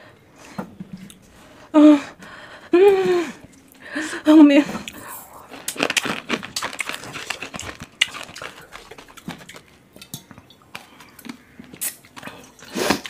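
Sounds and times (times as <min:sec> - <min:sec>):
breaths: 0:01.4 - 0:05.5
person gulping water: 0:04.8 - 0:13.0.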